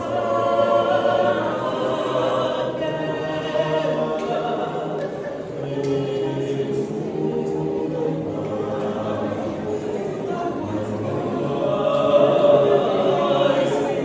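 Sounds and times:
male vocal trio singing a cappella: 0.0s - 14.0s.

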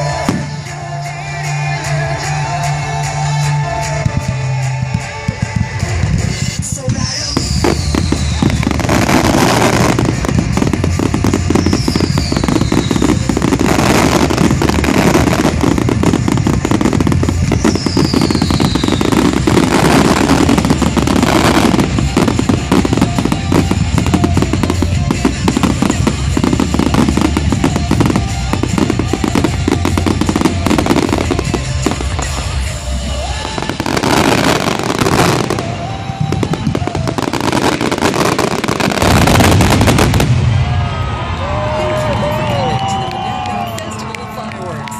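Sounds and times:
fireworks crackling: 0.0s - 44.9s
music soundtrack: 0.0s - 44.9s
falling firework whistle: 7.3s - 15.8s, 16.8s - 23.6s.

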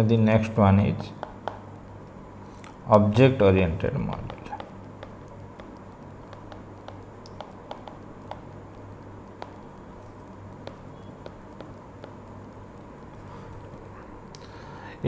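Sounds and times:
low electrical hum: 0.0s - 15.0s
pen tapping on tablet screen: 1.2s - 1.9s, 4.1s - 13.9s.

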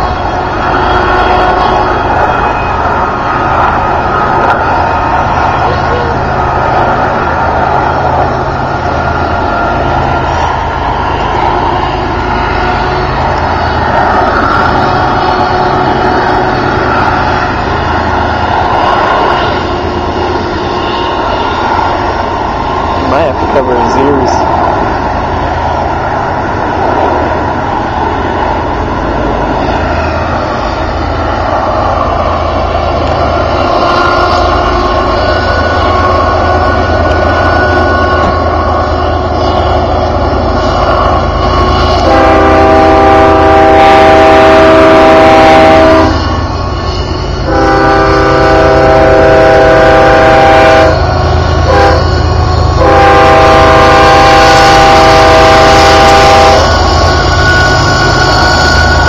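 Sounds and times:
diesel locomotives rumbling: 0.0s - 59.0s
locomotive air horn blasts: 42.0s - 46.3s, 47.4s - 52.2s, 52.8s - 56.8s.

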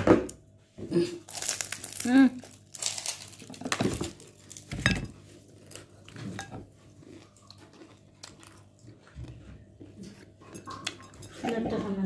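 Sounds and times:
person chewing: 1.1s - 4.7s, 5.3s - 11.0s.

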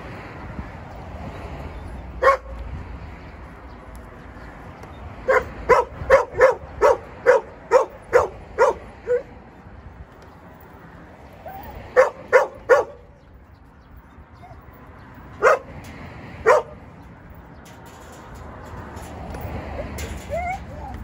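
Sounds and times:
dog barking: 2.2s - 2.5s, 5.2s - 9.3s, 11.9s - 13.1s, 15.4s - 15.7s, 16.4s - 16.8s.

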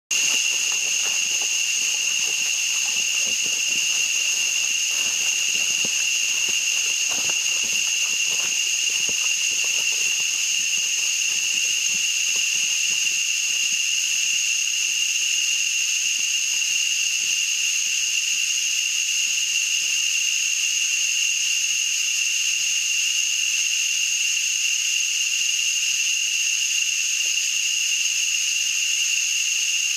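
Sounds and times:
footsteps on leaf litter: 0.1s - 14.8s
high-pitched insect drone: 0.1s - 29.9s.

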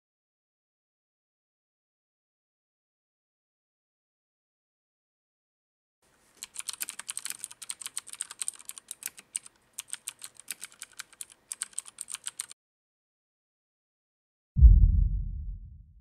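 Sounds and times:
mechanical keyboard key clicks: 6.4s - 12.6s.

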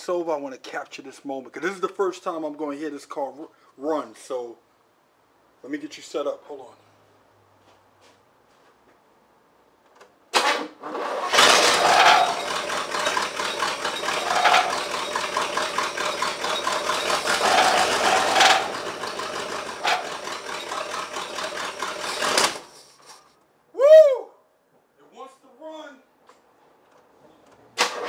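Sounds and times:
car engine cranking on starter: 10.4s - 22.7s, 27.8s - 28.0s.

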